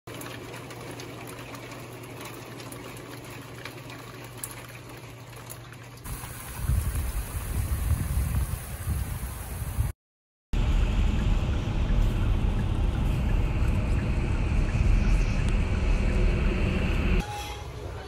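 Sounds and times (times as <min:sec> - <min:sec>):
low hum: 0:10.6 - 0:17.2
uneven low rumble: 0:10.6 - 0:17.2.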